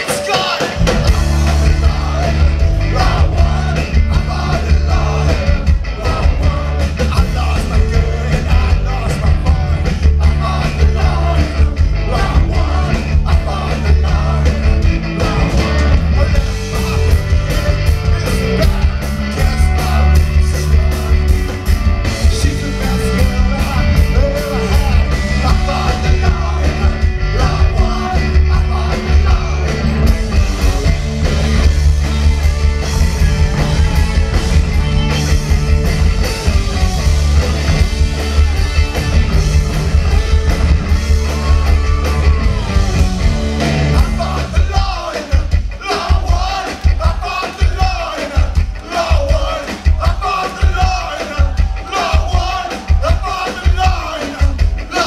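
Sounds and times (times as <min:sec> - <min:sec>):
live rock band playing: 0:00.0 - 0:55.0
person shouting lead vocal: 0:44.0 - 0:55.0.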